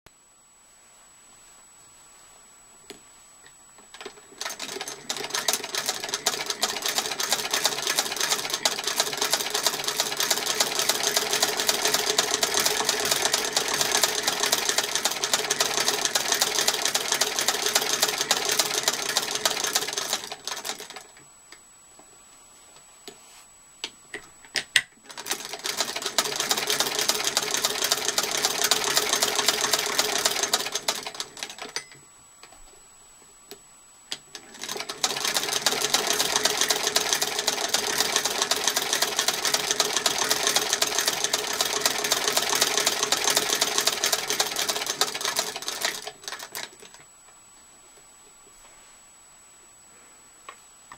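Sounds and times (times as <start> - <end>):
sewing machine ticking: 4.0 - 21.1, 25.1 - 31.9, 34.3 - 47.0.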